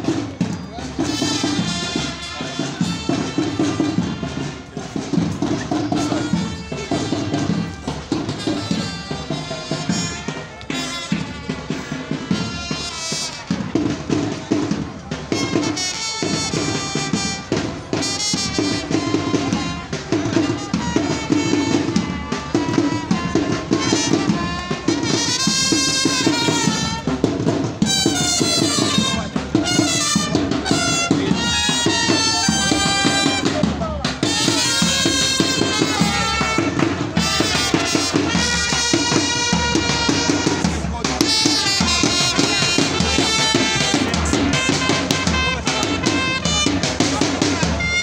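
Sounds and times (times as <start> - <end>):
snare and bass drums: 0.0 - 48.0
trumpets playing melody: 1.0 - 14.0, 15.3 - 48.0.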